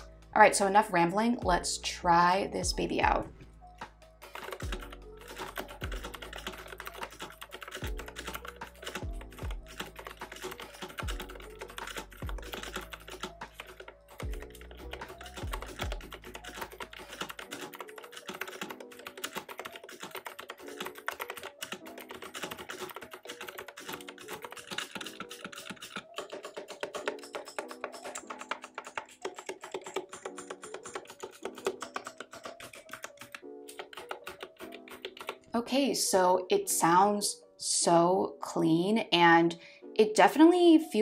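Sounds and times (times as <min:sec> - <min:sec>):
background music: 0:00.0 - 0:41.0
mechanical keyboard typing: 0:04.2 - 0:35.5.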